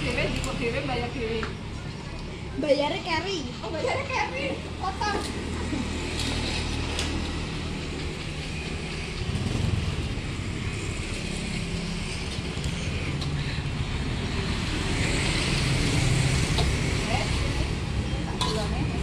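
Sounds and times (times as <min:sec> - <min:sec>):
motorbike engines passing: 0:00.0 - 0:19.0.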